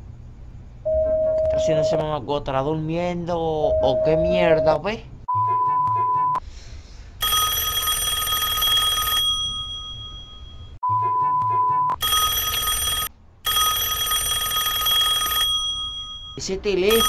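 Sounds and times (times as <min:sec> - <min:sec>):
steady high beep: 0:00.9 - 0:02.1, 0:03.6 - 0:06.4
phone ringing: 0:07.2 - 0:10.8, 0:12.0 - 0:17.0.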